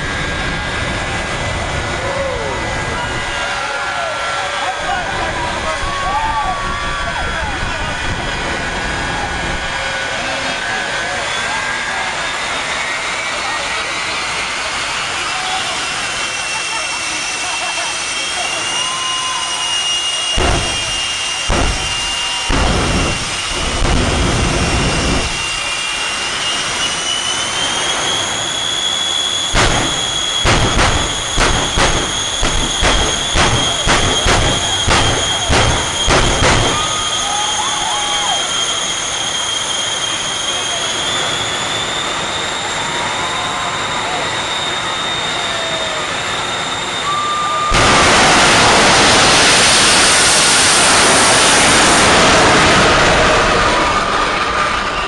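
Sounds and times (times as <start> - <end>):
jet engine whine: 0.0 - 55.0
rushing exhaust: 0.0 - 55.0
loud flame blasts: 4.8 - 11.1, 18.8 - 42.1, 47.6 - 55.0.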